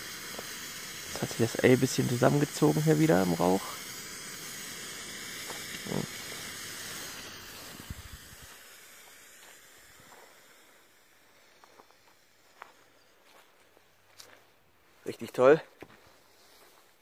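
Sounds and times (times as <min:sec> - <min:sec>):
smoke flare hissing: 0:00.0 - 0:13.5.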